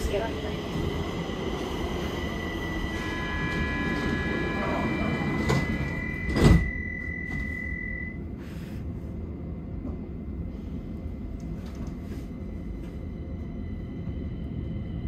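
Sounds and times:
train wheels rumbling on rail: 0:00.0 - 0:07.6
high steady whine: 0:00.0 - 0:15.0.

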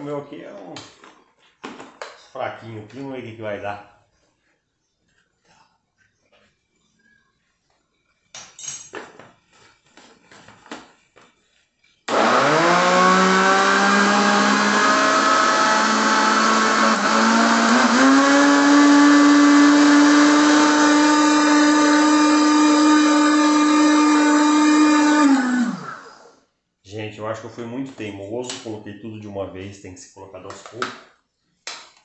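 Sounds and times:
blender motor running: 0:12.1 - 0:26.4.

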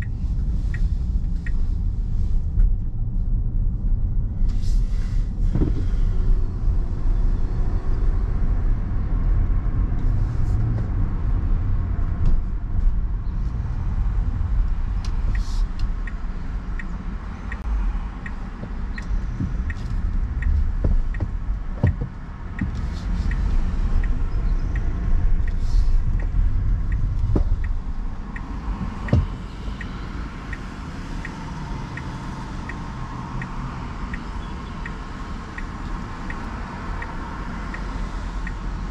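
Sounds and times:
turn signal ticking: 0:00.0 - 0:04.6, 0:05.3 - 0:38.9
car road and engine rumble: 0:00.0 - 0:38.9.

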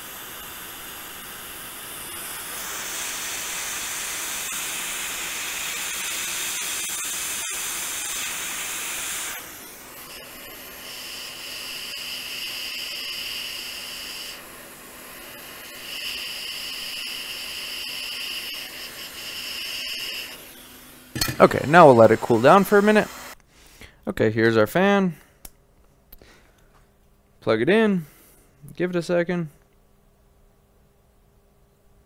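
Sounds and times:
hot air station hiss: 0:00.0 - 0:23.8.

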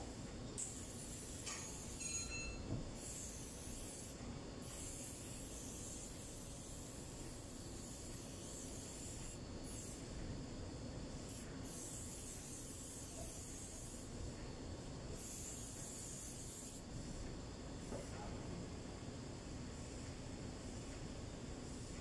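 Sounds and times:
aerosol spray can hissing: 0:00.6 - 0:02.0, 0:02.9 - 0:10.2, 0:11.1 - 0:14.1, 0:15.1 - 0:17.0.

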